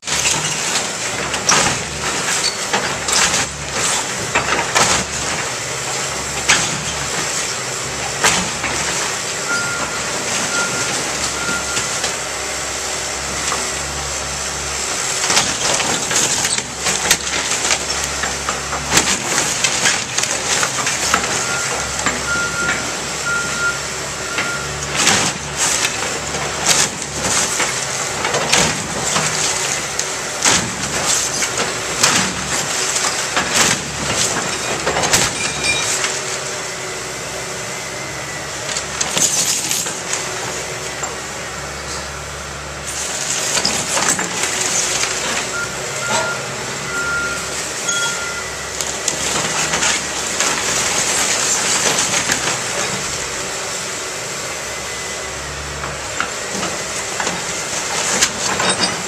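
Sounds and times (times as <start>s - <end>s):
wood cracking and crashing: 0.0s - 5.7s, 15.2s - 23.0s, 24.8s - 36.2s, 48.8s - 53.3s
excavator engine running: 0.0s - 59.0s
short beeps: 9.4s - 11.9s, 21.4s - 24.8s, 45.5s - 48.7s.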